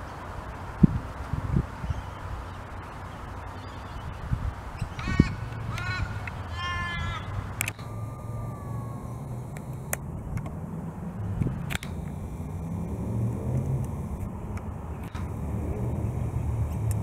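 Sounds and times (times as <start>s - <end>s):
crow cawing: 5.0s - 9.4s
steady low rumble: 7.2s - 17.0s.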